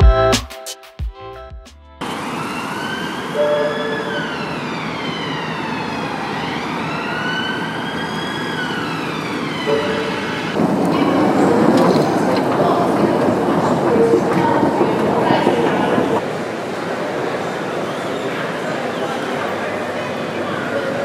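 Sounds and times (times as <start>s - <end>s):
emergency vehicle siren wailing: 2.0s - 10.6s
street traffic noise: 2.0s - 21.0s.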